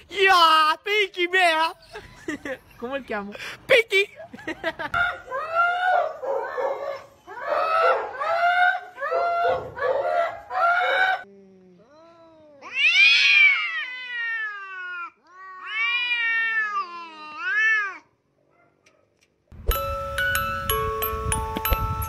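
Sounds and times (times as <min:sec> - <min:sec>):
cats yowling: 0:11.9 - 0:18.1.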